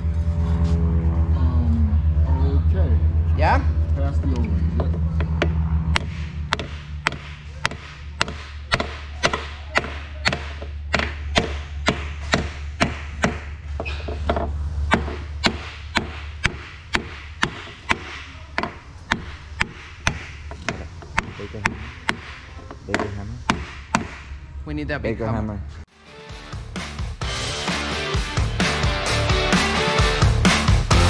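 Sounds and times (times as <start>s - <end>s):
hammer striking wooden block: 5.4s - 13.5s, 14.2s - 24.3s.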